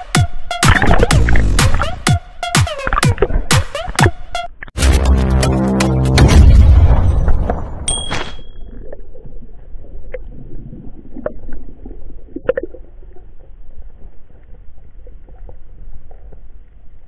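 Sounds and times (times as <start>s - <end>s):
low rumble of moving water: 8.5s - 17.0s.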